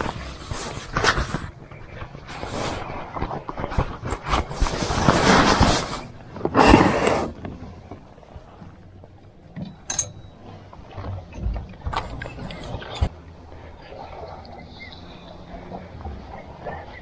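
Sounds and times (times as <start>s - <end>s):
fishing tackle rustling and scraping: 0.0s - 13.2s.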